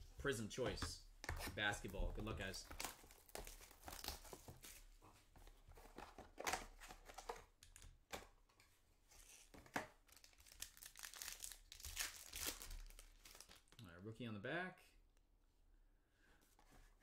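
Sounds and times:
cards rustling: 0.6s - 8.3s
foil wrapper crinkling and tearing: 10.1s - 13.8s.

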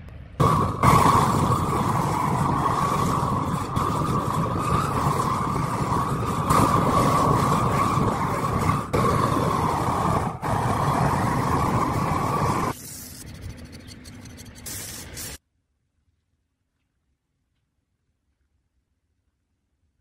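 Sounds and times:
blowtorch flame roaring: 0.4s - 12.8s.

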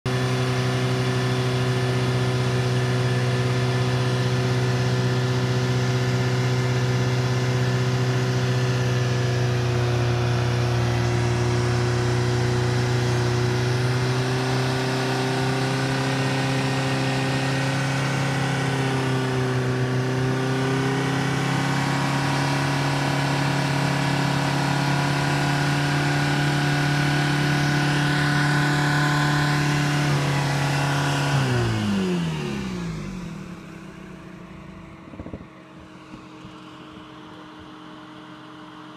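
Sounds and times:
diesel engine at high revs: 0.0s - 38.9s.

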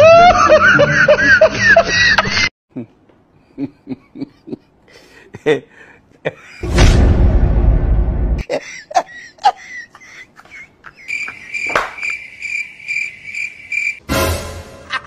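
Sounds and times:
cricket chirping: 11.0s - 14.0s.

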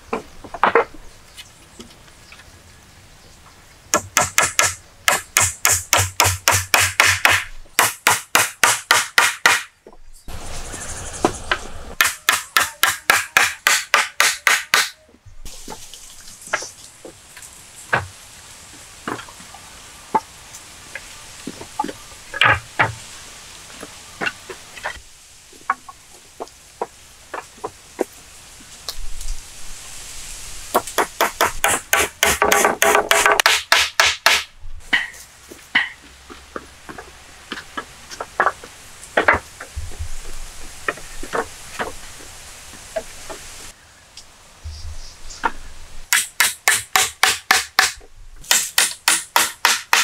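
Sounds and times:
wooden poles knocking: 0.1s - 1.0s, 3.9s - 10.0s, 11.5s - 15.2s, 21.5s - 23.0s, 30.8s - 43.5s, 45.4s - 50.0s
blade chopping wooden pole: 4.0s - 9.7s, 12.0s - 15.0s, 30.8s - 35.1s, 46.1s - 50.0s.

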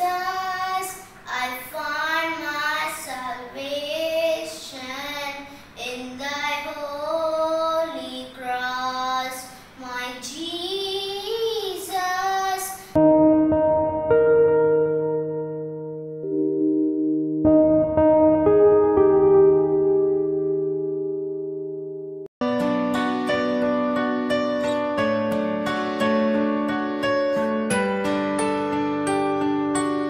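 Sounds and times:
boy singing a hymn: 0.0s - 13.0s
sustained keyboard chord: 13.0s - 30.0s.

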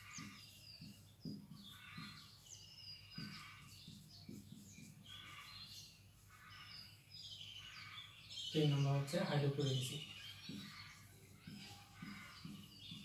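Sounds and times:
marker squeaking on whiteboard: 0.0s - 6.9s, 10.0s - 13.0s.

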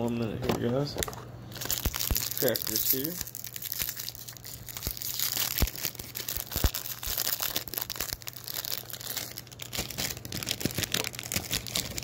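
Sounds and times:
plastic packaging crinkling: 1.0s - 12.0s.

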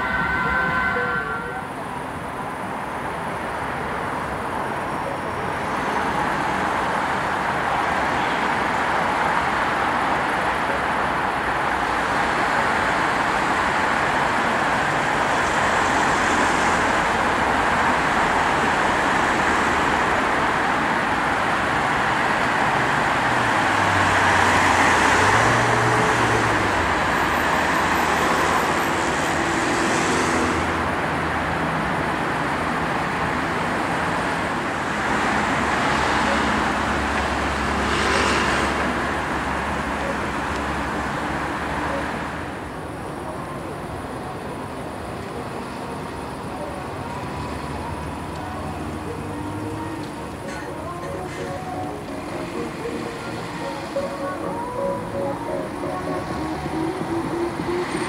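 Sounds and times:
cars passing on road: 0.0s - 58.0s
vehicle with low engine passing: 15.7s - 42.8s, 47.1s - 58.0s.

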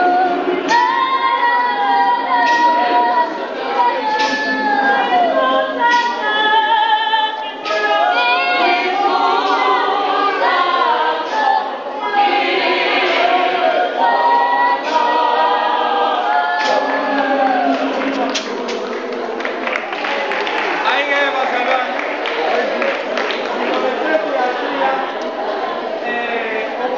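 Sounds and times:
choir singing a cappella: 0.0s - 20.8s.

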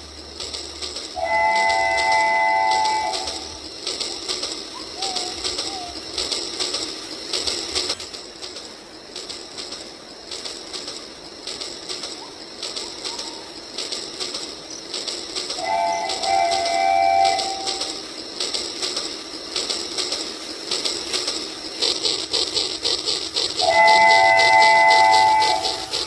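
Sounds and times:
bird calling: 1.2s - 6.6s, 11.9s - 18.2s.

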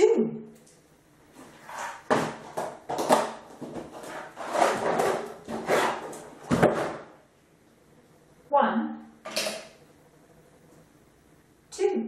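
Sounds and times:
plastic tub sliding across floor: 1.4s - 7.2s.

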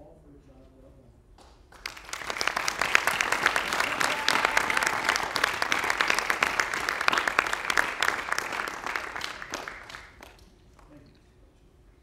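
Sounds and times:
audience applauding: 1.7s - 10.5s.

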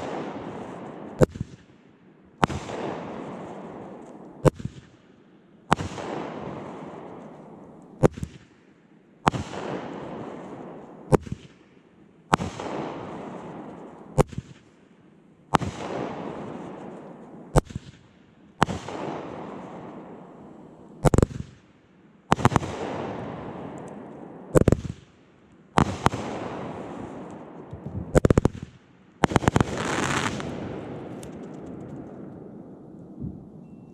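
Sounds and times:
aerial firework shots with hiss: 29.2s - 31.2s
bright firework burst: 29.3s - 30.5s.

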